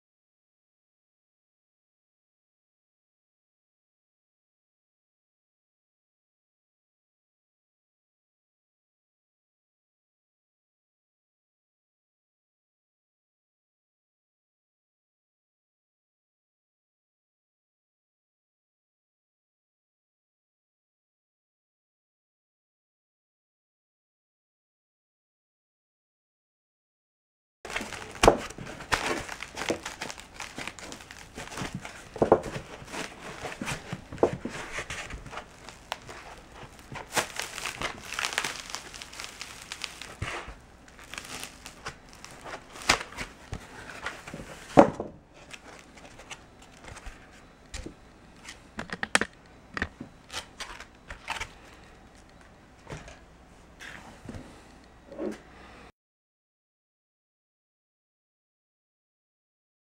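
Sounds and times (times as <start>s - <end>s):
foam rustling and scraping: 27.7s - 47.5s.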